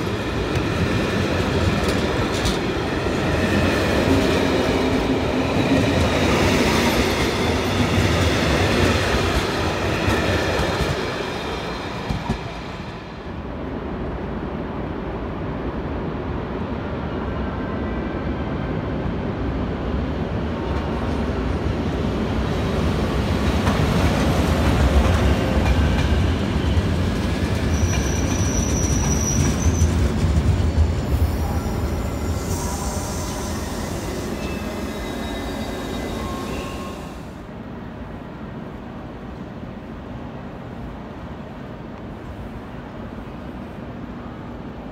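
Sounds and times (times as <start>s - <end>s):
train rumbling on rails: 0.0s - 44.9s
train wheels squealing: 25.0s - 37.4s.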